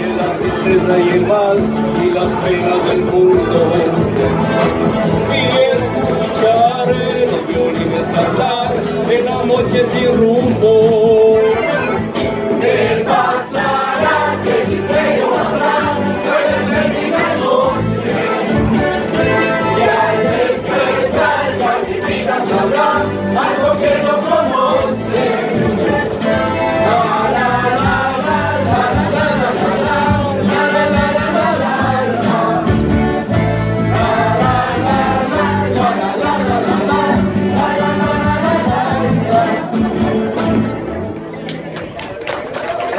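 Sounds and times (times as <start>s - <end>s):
mixed choir singing: 0.0s - 1.3s, 12.4s - 40.5s
guitars and plucked strings: 0.0s - 42.0s.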